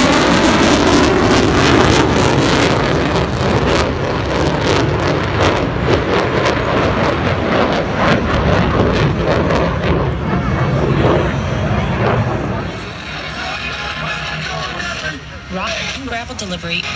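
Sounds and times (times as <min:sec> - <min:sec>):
wind gusting on microphone: 0:00.0 - 0:13.2
fighter jet flying past: 0:00.0 - 0:16.0.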